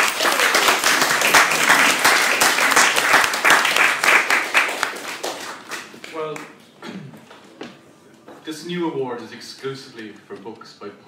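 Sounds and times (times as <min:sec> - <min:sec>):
audience applauding: 0:00.0 - 0:06.5.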